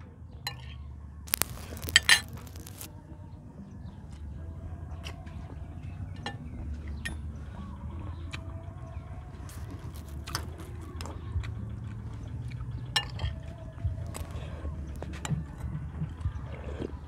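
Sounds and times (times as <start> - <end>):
low steady rumble: 0.8 - 17.0
chewing: 9.3 - 17.0.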